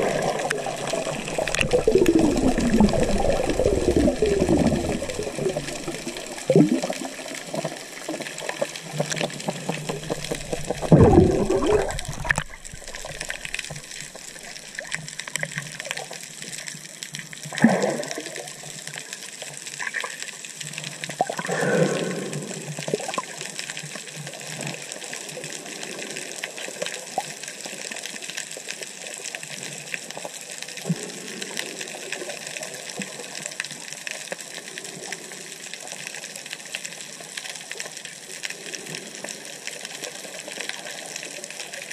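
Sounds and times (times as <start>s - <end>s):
gurgling bubble bursts: 0.0s - 15.0s, 17.5s - 18.6s, 21.2s - 23.3s
steady underwater hiss: 0.0s - 41.9s.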